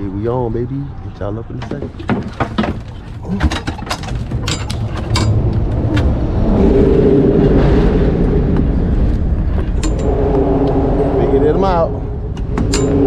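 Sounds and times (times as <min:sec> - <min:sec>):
knocks and clicks: 0:01.6 - 0:06.3, 0:12.3 - 0:13.0.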